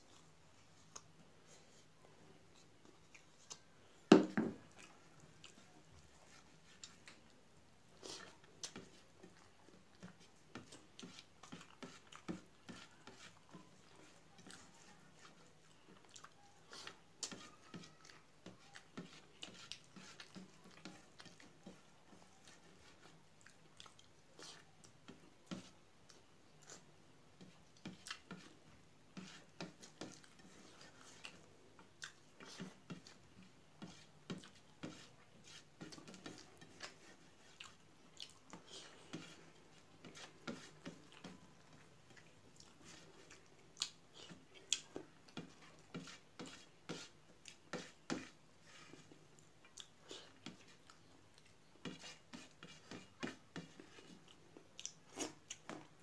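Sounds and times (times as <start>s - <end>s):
chewing and lip smacks: 15.6s - 16.9s, 23.4s - 25.0s, 31.2s - 32.4s, 36.8s - 39.0s, 42.1s - 45.4s, 49.4s - 51.6s, 54.2s - 56.0s.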